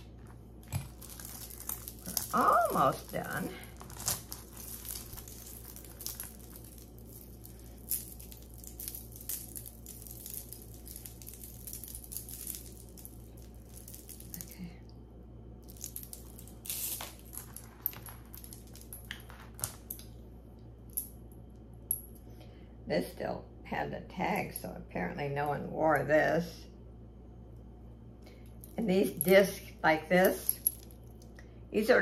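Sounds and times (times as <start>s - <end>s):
wrapping rustling: 0.0s - 14.7s
steady low hum: 0.0s - 32.0s
metal pieces clinking: 0.6s - 14.7s, 15.6s - 20.1s.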